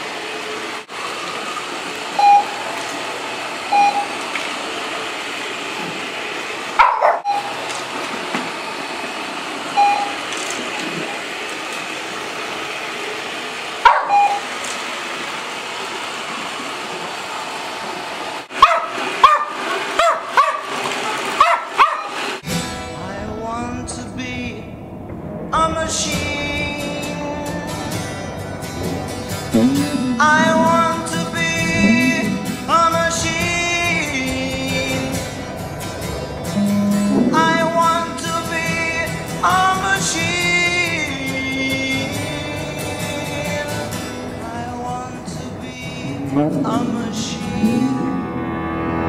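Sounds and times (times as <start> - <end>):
treat dispenser short beeps: 2.2 - 2.6, 3.7 - 4.2, 7.3 - 7.5, 9.8 - 10.2, 14.1 - 14.4
dogs barking: 6.7 - 7.5, 13.8 - 14.4, 18.5 - 22.3, 28.4 - 32.7
music: 22.4 - 24.2, 25.6 - 49.0
robot vacuum running: 27.0 - 37.6.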